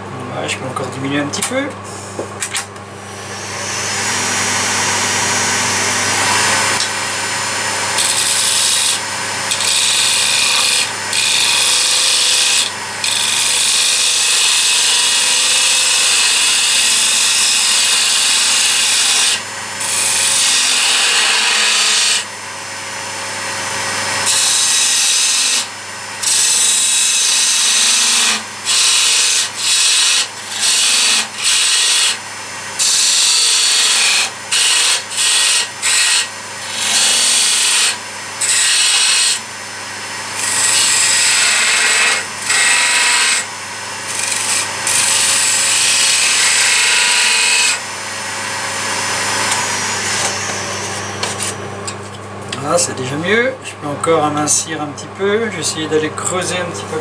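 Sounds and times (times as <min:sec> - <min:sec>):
lathe humming: 0:00.0 - 0:54.6
gouge cutting spinning wood: 0:03.1 - 0:22.3, 0:23.8 - 0:47.9.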